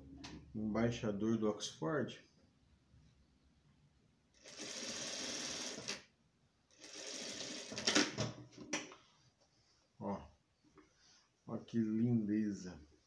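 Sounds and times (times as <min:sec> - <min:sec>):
sewing machine stitching: 0:04.4 - 0:06.0, 0:06.8 - 0:08.2.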